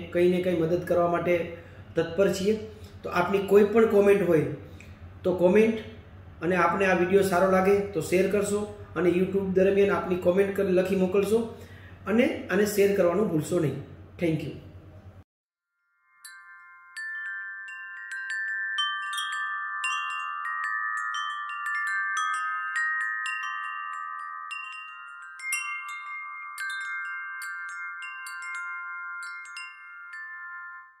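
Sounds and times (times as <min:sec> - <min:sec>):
wind chimes tinkling: 0:15.7 - 0:31.0.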